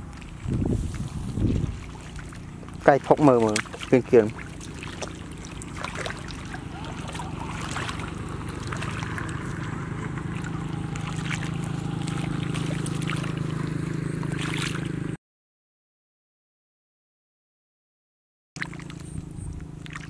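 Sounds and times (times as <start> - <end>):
hands splashing in muddy water: 0.0 - 15.0, 18.6 - 19.1, 19.8 - 20.0
steady low hum: 0.0 - 15.2.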